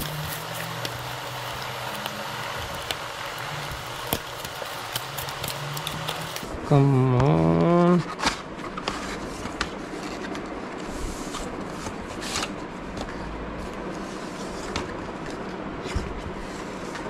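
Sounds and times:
steady background hiss: 0.0 - 7.1.

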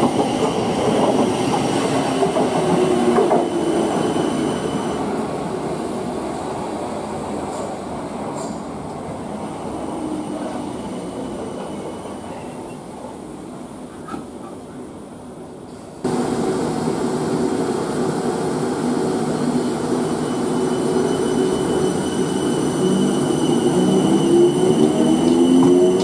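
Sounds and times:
train wheels rumbling on track: 0.0 - 5.6, 15.6 - 26.0.

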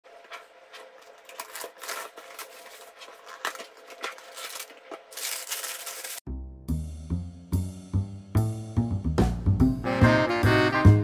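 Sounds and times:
plastic bag crinkling: 0.8 - 6.2.

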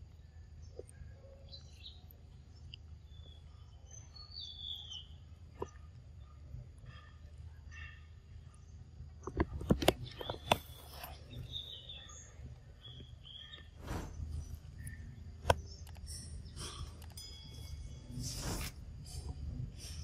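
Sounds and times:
faint bird chirps: 0.0 - 20.0.

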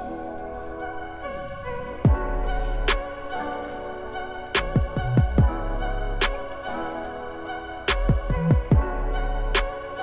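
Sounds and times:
deep kick drum: 2.1 - 2.3, 4.7 - 5.8, 8.0 - 9.0.

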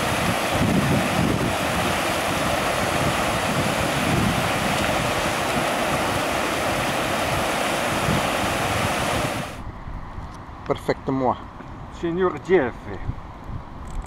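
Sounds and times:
stream rushing: 0.0 - 9.6.

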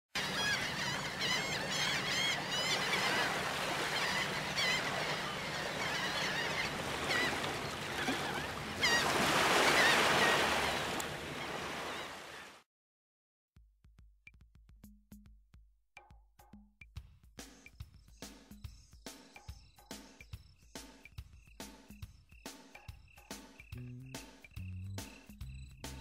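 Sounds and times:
birds calling: 0.2 - 12.6
waves washing: 0.2 - 12.6.

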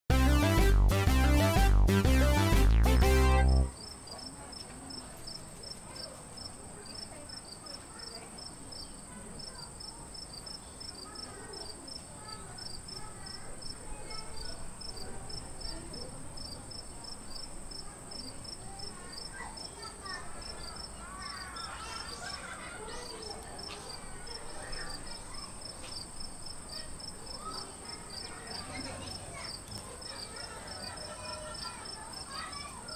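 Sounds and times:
insects chirping: 23.9 - 32.9.

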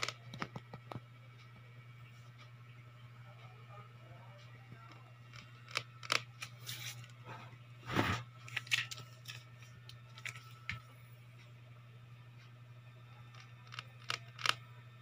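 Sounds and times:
steady low hum: 0.0 - 15.0
loud scrape: 7.9 - 8.2.

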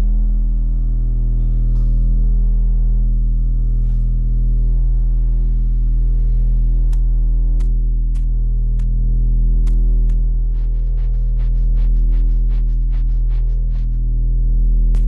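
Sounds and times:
loud low hum: 0.0 - 15.0.

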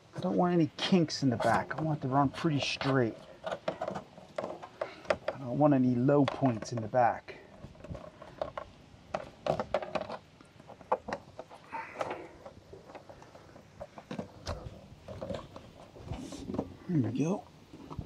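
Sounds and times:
plastic hose clicking and rubbing: 0.2 - 18.0
scraping rub: 10.7 - 16.9.

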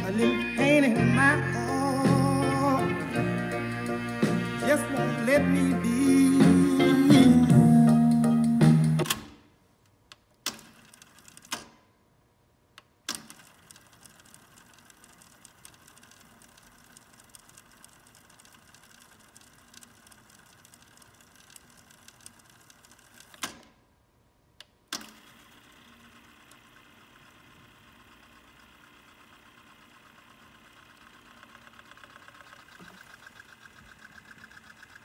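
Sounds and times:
tape fast-winding whir: 25.1 - 35.0.

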